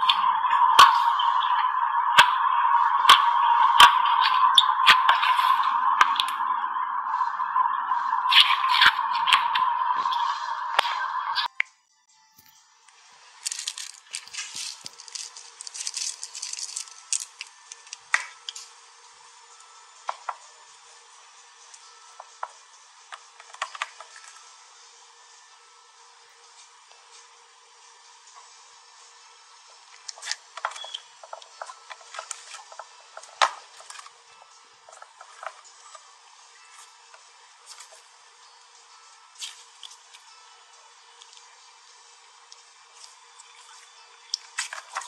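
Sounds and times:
clay pieces pattering into slime: 13.4s - 18.6s.

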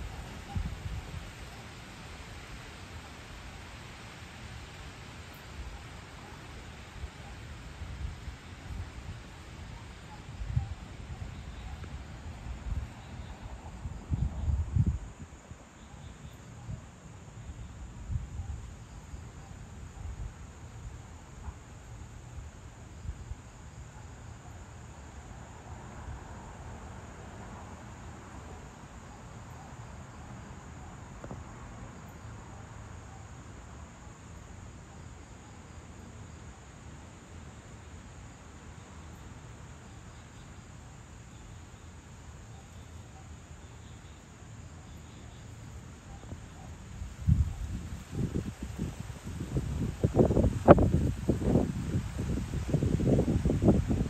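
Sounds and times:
wind gusts buffeting microphone: 0.0s - 1.4s, 10.3s - 15.5s, 47.0s - 54.0s
crickets chirping: 0.0s - 54.0s.

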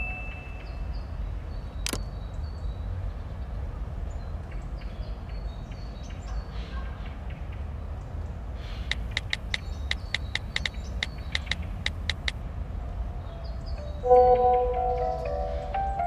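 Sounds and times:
high bird chirps: 0.0s - 0.9s, 8.8s - 12.3s, 13.5s - 16.0s
sharp click: 1.8s - 2.0s, 8.9s - 12.4s.

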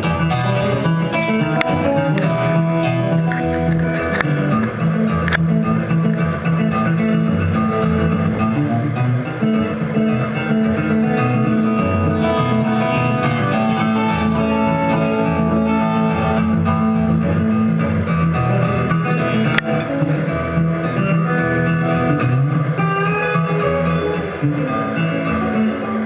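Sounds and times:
fingerpicked acoustic guitar: 0.0s - 26.0s.

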